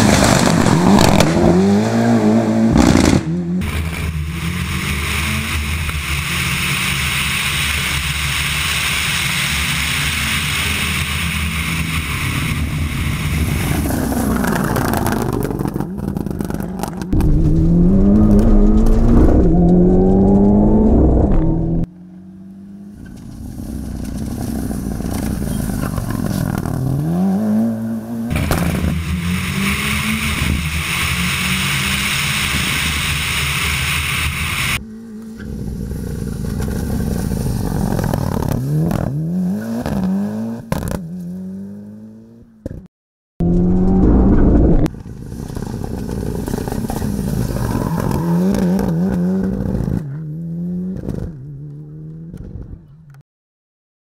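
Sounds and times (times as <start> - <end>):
car engine revving: 0.0 - 42.4, 43.4 - 44.9
loud rushing noise: 17.1 - 21.9.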